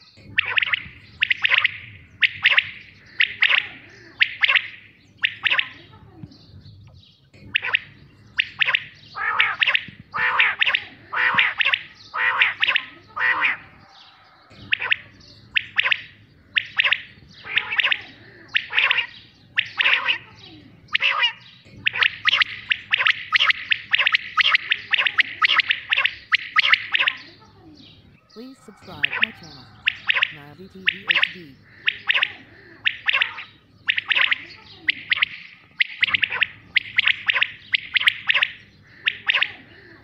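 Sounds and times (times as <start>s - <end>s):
quail calling: 0.0s - 40.0s.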